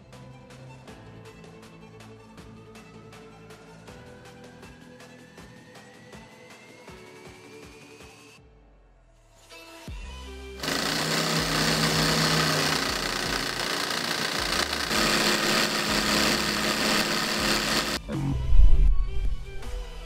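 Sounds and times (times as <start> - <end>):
model engine mechanical rattle: 10.6 - 18.0.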